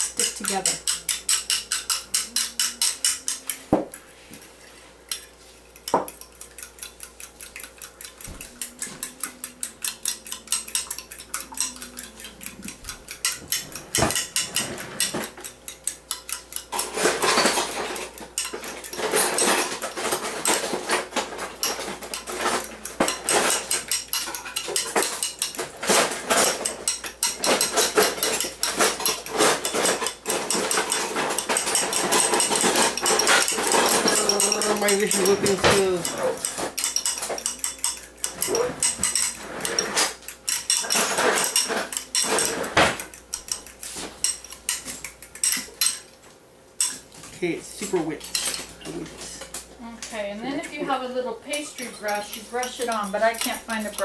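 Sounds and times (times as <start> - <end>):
fork clinking against a teacup: 5.1 - 16.8.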